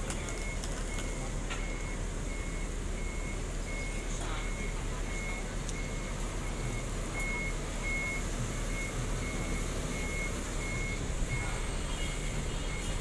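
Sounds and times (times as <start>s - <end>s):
bus warning beeper: 0.0s - 13.0s
diesel engine rumble: 0.0s - 13.0s.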